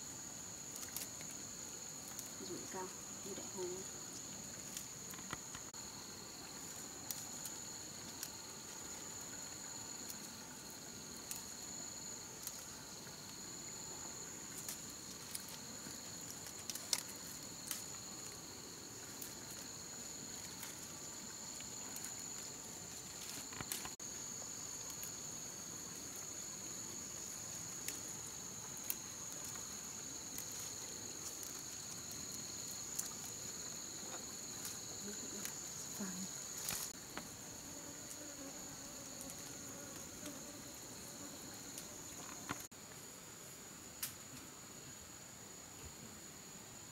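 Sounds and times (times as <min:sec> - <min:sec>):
insects chirring: 0:00.0 - 0:46.9
plants rustling being handled: 0:03.4 - 0:37.5.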